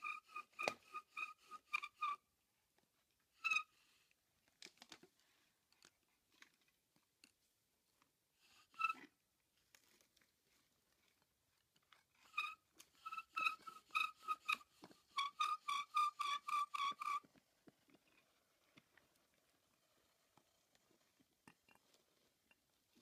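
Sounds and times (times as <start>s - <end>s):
bow drill spindle squeaking: 0.0s - 2.2s, 3.4s - 3.8s, 8.5s - 9.1s, 12.1s - 17.3s.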